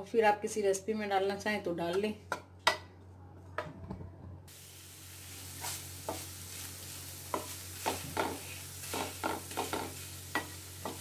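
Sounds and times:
food sizzling in a frying pan: 4.5 - 11.0.

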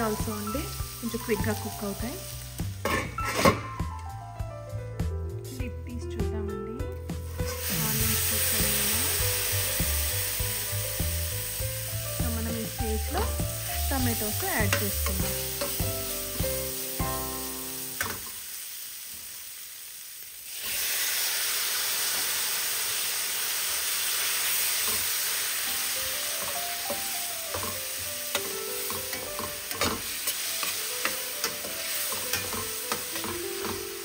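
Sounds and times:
food sizzling in oil: 0.0 - 3.8, 7.0 - 34.0
spatula scraping and tapping pan: 26.4 - 33.9.

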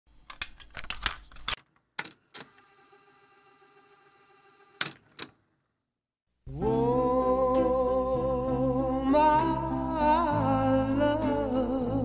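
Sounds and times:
music: 6.5 - 12.0.

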